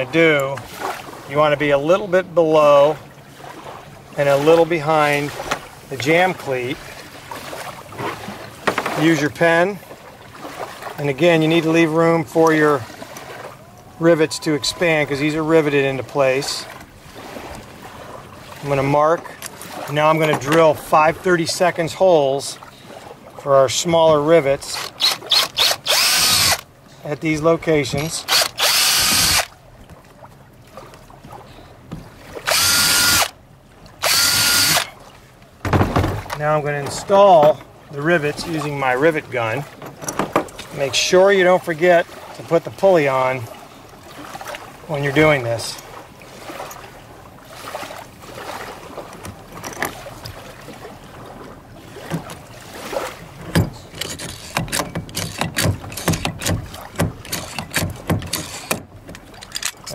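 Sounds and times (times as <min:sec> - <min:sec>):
cordless drill whining: 0:24.8 - 0:26.6, 0:28.3 - 0:29.5, 0:32.5 - 0:33.4, 0:34.0 - 0:34.9, 0:58.3 - 0:58.8.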